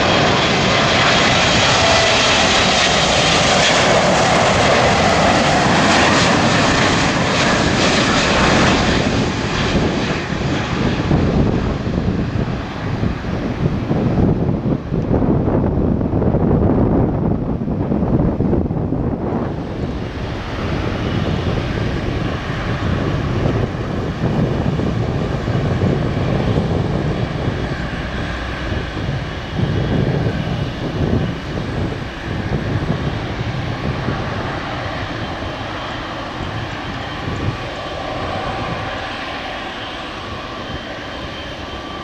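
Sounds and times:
jet engine roar: 0.0 - 42.0.

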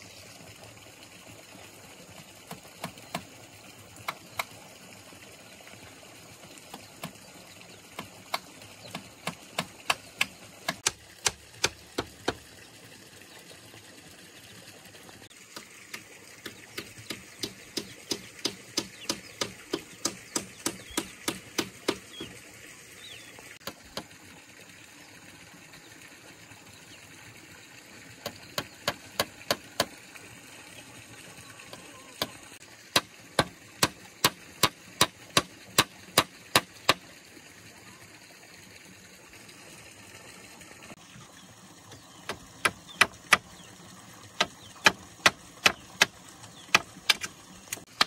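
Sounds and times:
rapid tool strikes: 8.0 - 12.4, 15.5 - 22.1, 32.9 - 37.0, 44.4 - 46.1.

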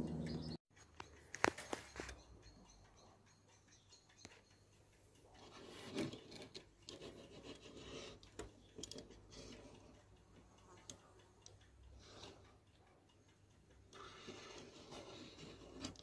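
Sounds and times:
toy car rubbing on wood: 5.4 - 10.0, 14.0 - 16.0.

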